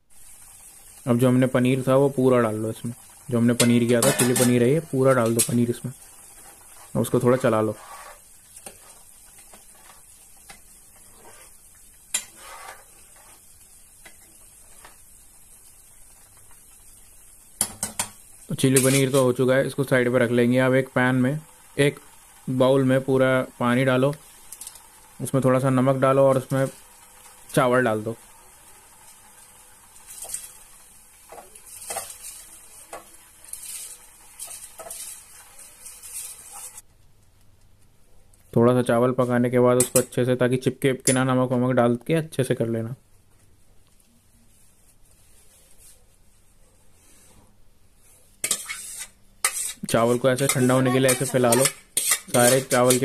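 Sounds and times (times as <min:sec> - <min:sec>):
ladle scraping a frying pan: 0:03.6 - 0:05.6, 0:06.2 - 0:15.0, 0:30.0 - 0:30.7, 0:31.3 - 0:36.8, 0:48.4 - 0:53.0
rice swishing and scraping in water: 0:06.3 - 0:10.1, 0:11.0 - 0:11.6, 0:12.2 - 0:13.6, 0:33.4 - 0:36.8.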